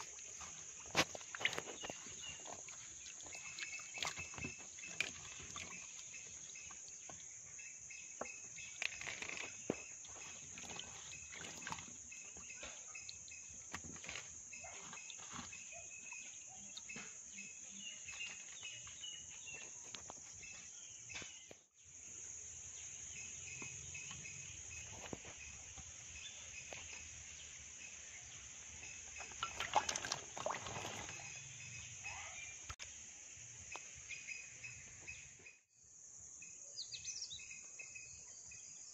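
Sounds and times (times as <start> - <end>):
insect chorus: 0.0 - 38.9
olives rubbed in water: 29.2 - 31.4.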